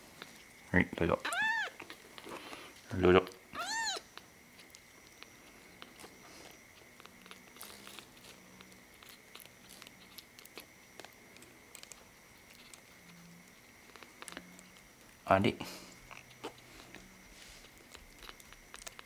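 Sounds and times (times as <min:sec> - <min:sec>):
kitten suckling wet clicks: 0:06.7 - 0:15.2, 0:17.6 - 0:19.0.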